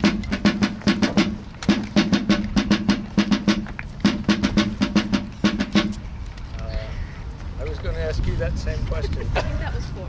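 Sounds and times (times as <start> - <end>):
snare drum beaten: 0.0 - 6.0.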